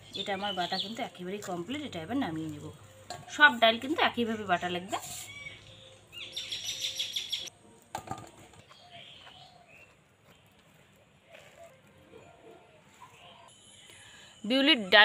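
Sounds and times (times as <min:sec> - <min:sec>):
small bird chirping: 0:05.1 - 0:07.5.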